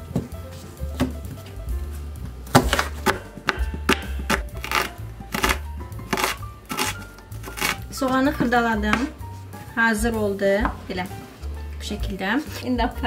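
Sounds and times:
background music: 0.0s - 13.0s
knife chopping on wooden board: 2.5s - 9.2s.

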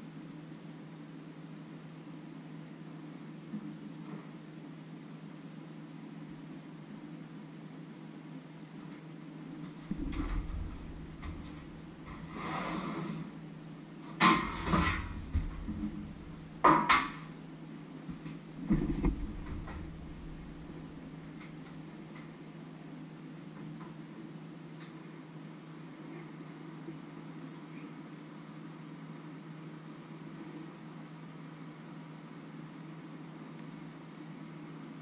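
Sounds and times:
steady low hum: 0.0s - 35.0s
baking tray scraping: 9.8s - 13.4s, 14.2s - 16.5s, 18.6s - 20.8s
loud metallic clanks: 14.2s - 17.2s.

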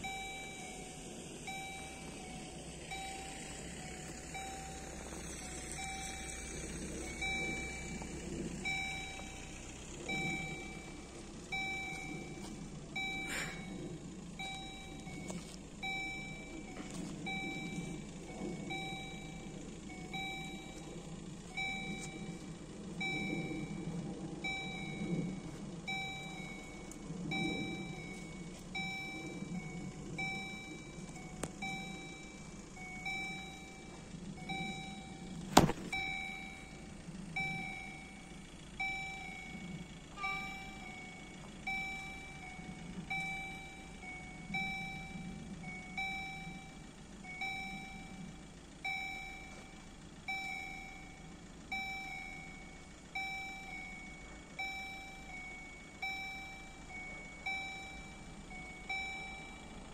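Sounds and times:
level crossing warning bell dinging: 0.0s - 59.9s.

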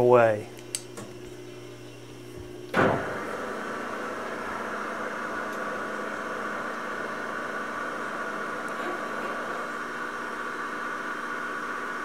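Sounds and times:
lathe spindle humming and whining: 1.0s - 12.0s
lathe starting with a clunk: 2.7s - 9.6s.

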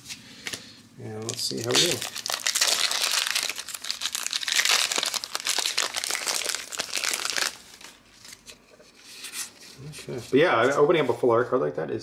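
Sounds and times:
foil wrapper crinkling: 1.1s - 8.5s.

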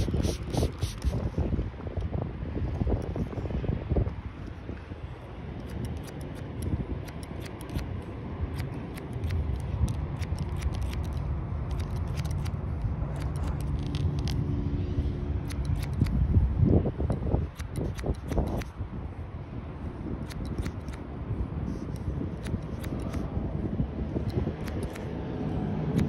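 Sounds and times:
steady low rumble: 0.0s - 26.0s
scissors snipping hair: 5.6s - 14.5s, 15.4s - 16.2s, 17.1s - 18.8s, 20.2s - 21.0s, 21.7s - 23.4s, 24.2s - 26.0s.

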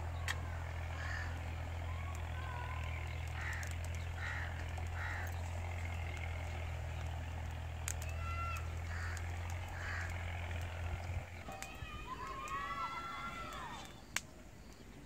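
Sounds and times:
birds calling: 0.0s - 15.0s
distant engine hum: 0.0s - 15.0s
sharp clicks: 2.0s - 12.7s.

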